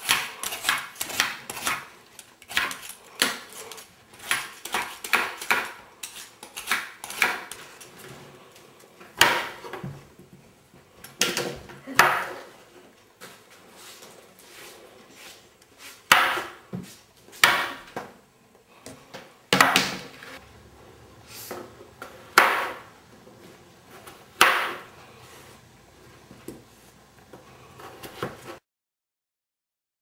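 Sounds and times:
knife chopping on cutting board: 2.5s - 7.7s.

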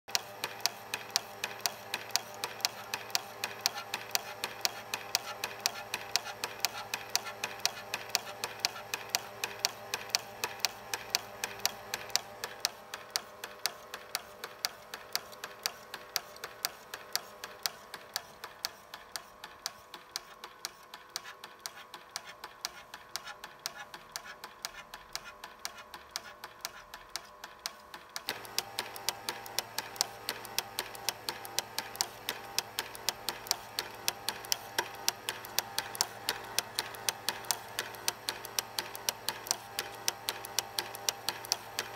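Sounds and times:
film scanner clicks: 0.1s - 18.7s, 28.2s - 41.9s
motor hum: 28.2s - 41.9s.

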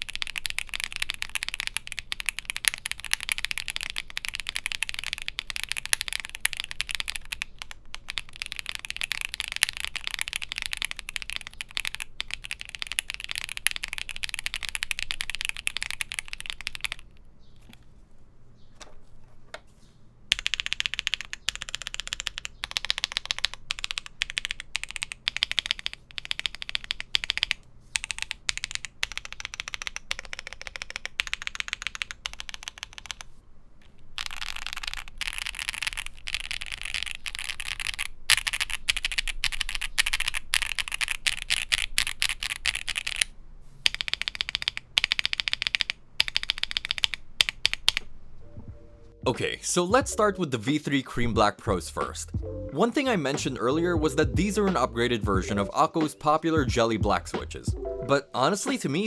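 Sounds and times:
mechanical keyboard typing: 0.0s - 17.8s, 20.3s - 33.3s, 34.2s - 48.1s.

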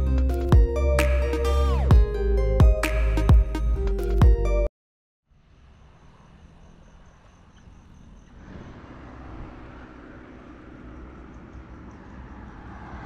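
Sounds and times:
wind and road noise while cycling: 6.1s - 13.0s.

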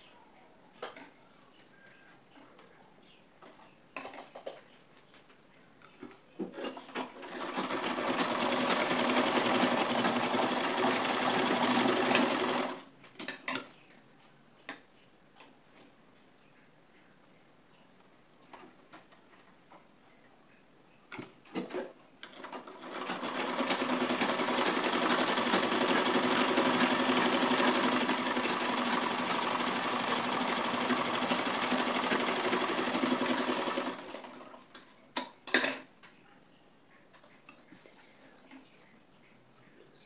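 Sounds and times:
sewing machine clicks: 6.6s - 12.8s, 21.6s - 34.5s
sewing machine stitching: 6.6s - 12.8s, 21.6s - 34.6s.

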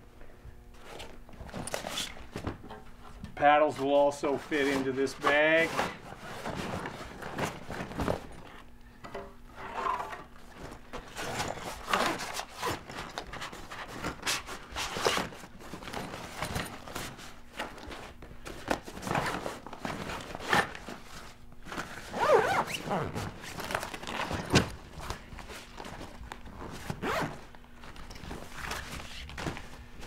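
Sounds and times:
knocks and shuffles: 0.7s - 8.6s.

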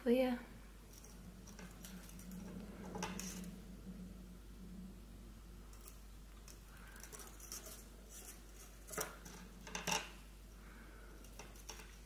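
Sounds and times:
rustling and clicks of wire: 0.9s - 3.6s, 5.7s - 10.2s, 11.2s - 12.0s.

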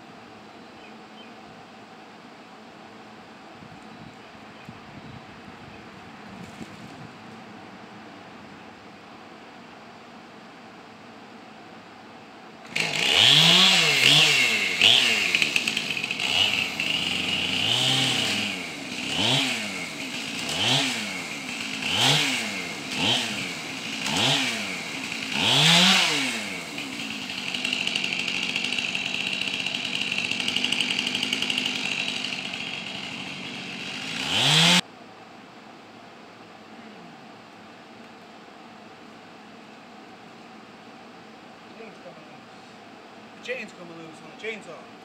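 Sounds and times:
chainsaw revving and cutting wood: 12.6s - 34.8s.

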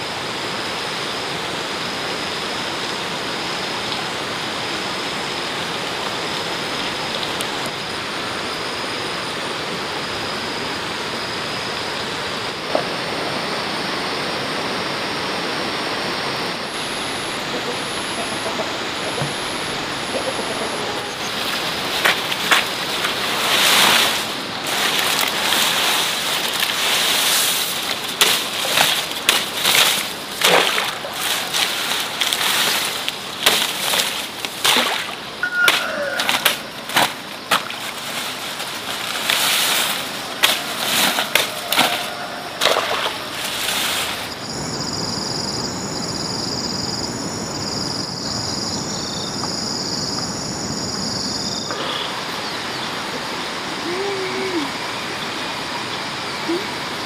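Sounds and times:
water splashing and sloshing: 21.1s - 44.4s.

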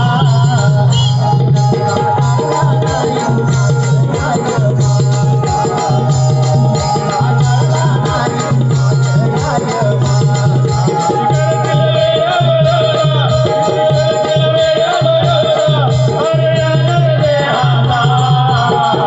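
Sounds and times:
wavering melody line: 0.0s - 12.2s
drum steady rhythm: 0.0s - 19.0s.

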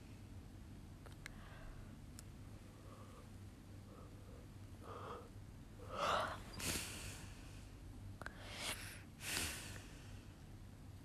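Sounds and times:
woman breathing heavily: 2.7s - 10.4s.

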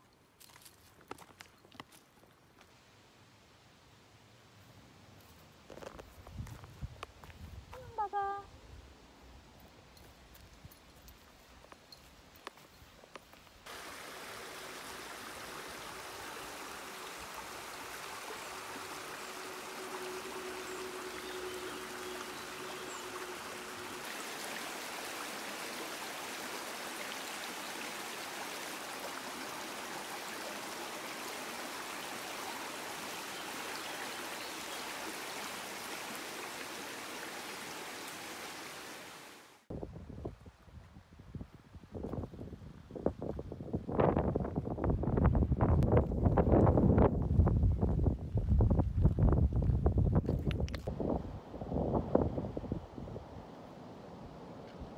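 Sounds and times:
flowing water rushing: 13.7s - 39.7s.

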